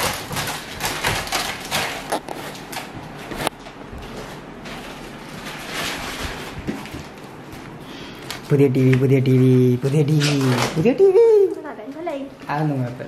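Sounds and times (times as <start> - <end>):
cardboard scraping and rustling: 0.0 - 7.2.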